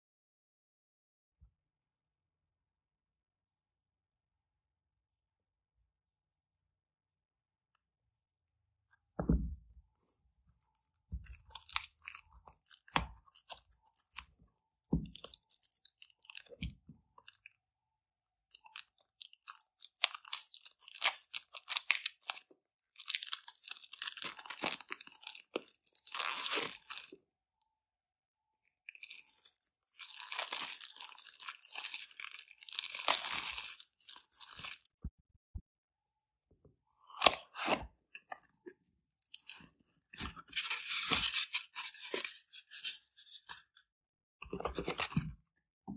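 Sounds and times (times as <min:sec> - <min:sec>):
plastic shrink wrap crinkling: 0:18.7 - 0:27.2, 0:29.0 - 0:34.9, 0:40.2 - 0:43.8.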